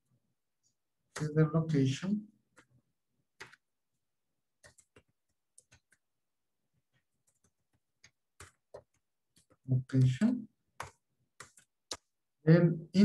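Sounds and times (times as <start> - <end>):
keyboard keys clicking: 2.4 - 3.7, 4.5 - 6.1, 7.0 - 12.2.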